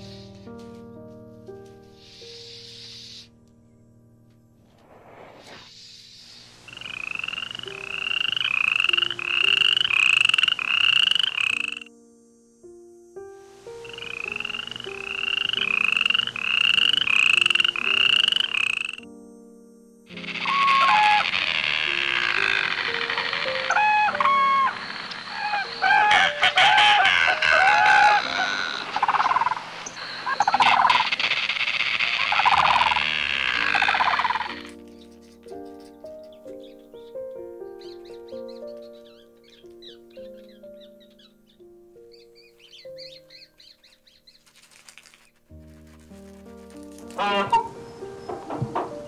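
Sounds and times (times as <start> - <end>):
animal buzzy trilling calls: 5.6 - 11.9, 13.8 - 19.0, 20.1 - 34.8, 47.1 - 47.8
chickens calling: 20.2 - 37.2, 46.6 - 49.0.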